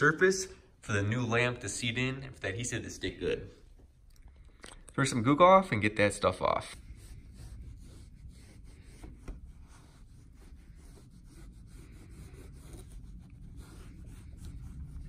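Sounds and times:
cloth rubbing on car paint: 6.0s - 15.0s.

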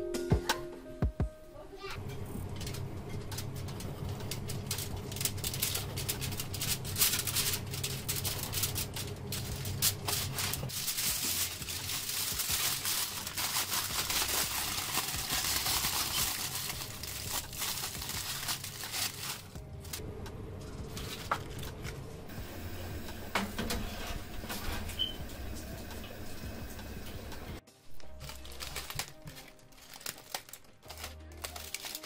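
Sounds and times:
aluminium foil crinkling: 2.6s - 20.0s, 20.7s - 22.0s, 27.8s - 32.0s.

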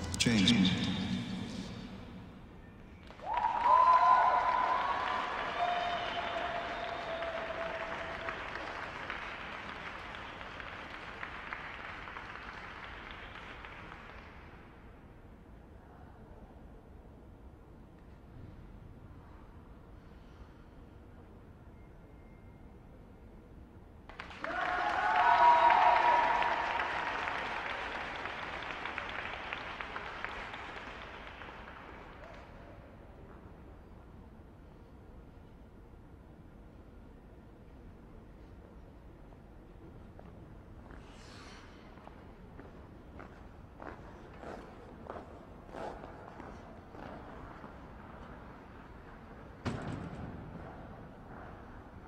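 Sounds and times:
audience applauding: 3.0s - 14.4s, 24.1s - 32.4s.

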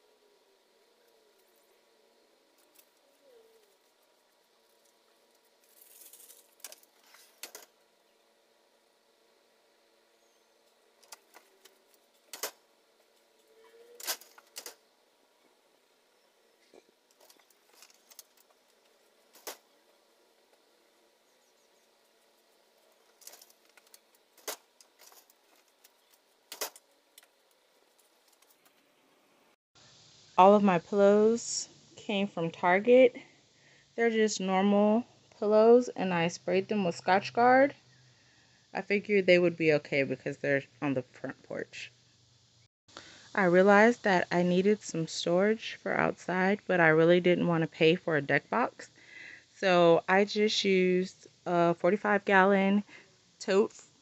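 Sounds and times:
rustle: 2.6s - 7.7s
faint bird call: 13.3s - 14.1s.

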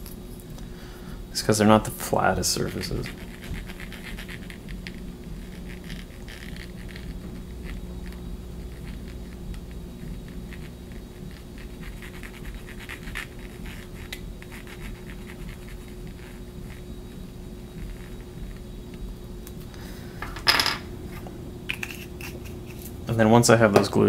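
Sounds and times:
steady low hum: 0.0s - 24.0s
faint scratching and ticks on plastic: 2.6s - 19.0s.

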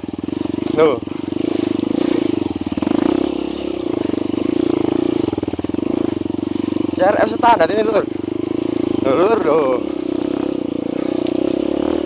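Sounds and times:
dirt bike engine running: 0.0s - 12.0s.

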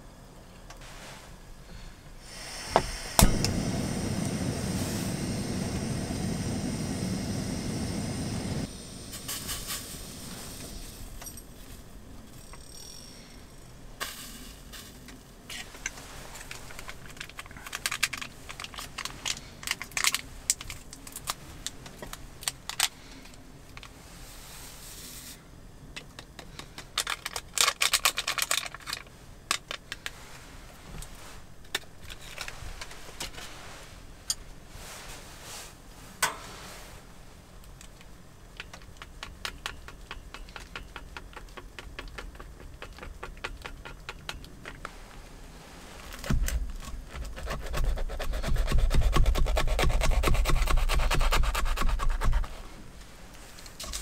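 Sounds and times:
packet rustle: 15.7s - 23.3s, 26.6s - 30.2s.

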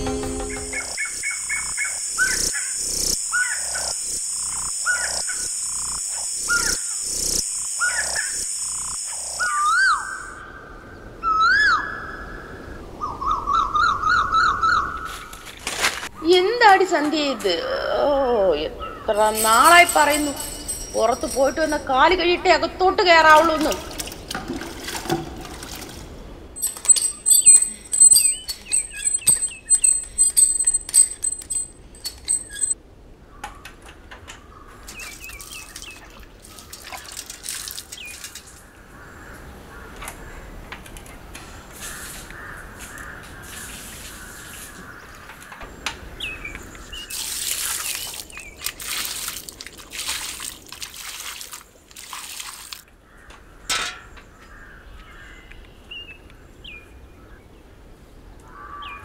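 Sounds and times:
water splashing and pouring: 23.6s - 26.3s, 34.9s - 38.6s, 47.1s - 52.9s
bird high quick chirps: 26.6s - 31.4s.

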